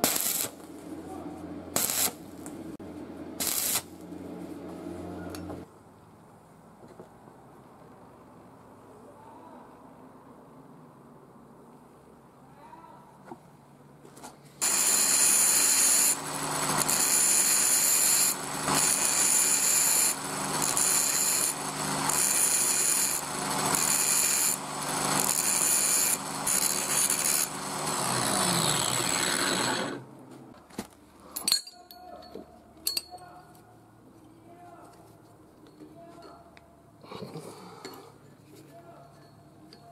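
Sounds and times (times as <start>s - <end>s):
angle grinder grinding steel: 14.6s - 30.0s
sharp metal clinks: 31.3s - 33.4s.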